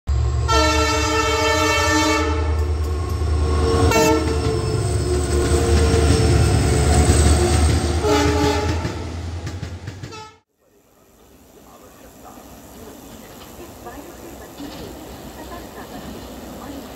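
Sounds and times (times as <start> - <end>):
rumble of passing train: 0.1 - 16.9
locomotive horn: 0.4 - 2.7, 3.6 - 4.7, 7.4 - 9.1, 10.0 - 10.4.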